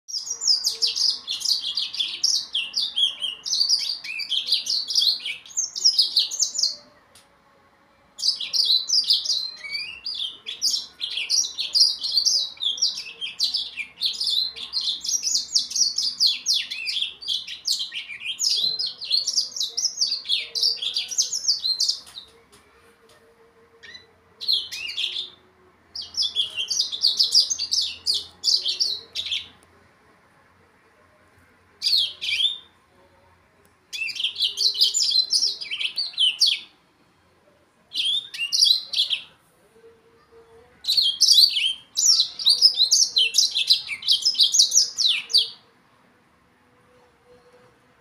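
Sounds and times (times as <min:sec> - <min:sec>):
canary singing high twittering: 0:00.1 - 0:06.9, 0:08.2 - 0:22.4, 0:23.8 - 0:29.6, 0:31.8 - 0:32.8, 0:33.9 - 0:36.7, 0:37.9 - 0:39.4, 0:40.8 - 0:45.7.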